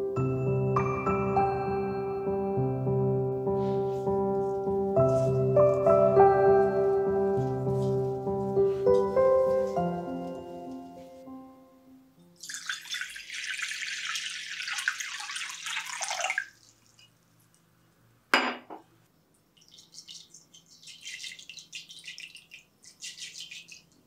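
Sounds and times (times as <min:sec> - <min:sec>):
water poured into glass bowl: 0:12.4 - 0:17.1, 0:19.6 - 0:24.0
glass clink: 0:18.3 - 0:18.8.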